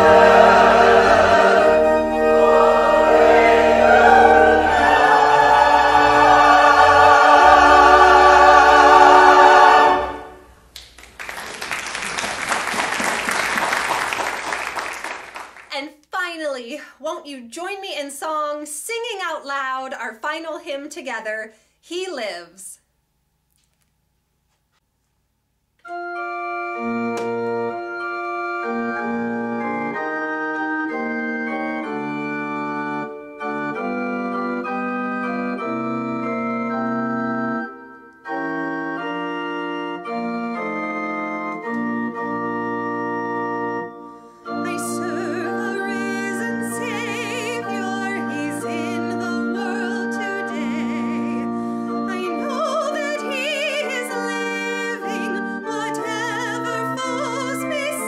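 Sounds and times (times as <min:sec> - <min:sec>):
organ playing slow chords: 0:00.0 - 0:10.8, 0:25.8 - 0:58.0
woman singing with vibrato: 0:44.6 - 0:58.0.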